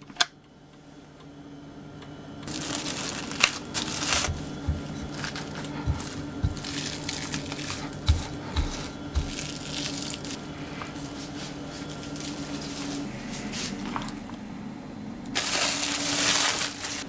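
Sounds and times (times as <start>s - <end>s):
steady low hum: 0.0s - 17.0s
cling film rustling and crinkling: 2.4s - 14.3s, 15.3s - 17.0s
soft knocks: 4.2s - 5.2s.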